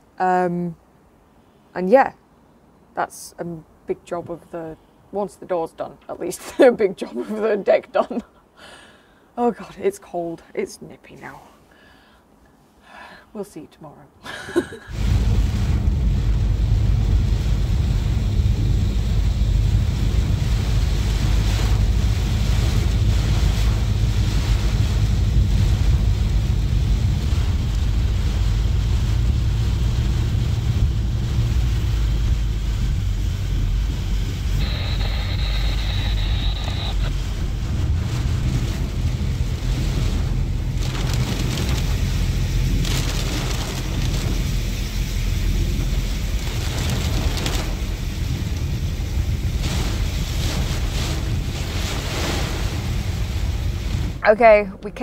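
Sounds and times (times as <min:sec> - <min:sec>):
hiss of rain and spray: 0:14.3 - 0:54.6
road and engine rumble: 0:14.9 - 0:55.0
high-pitched whine: 0:28.0 - 0:48.6.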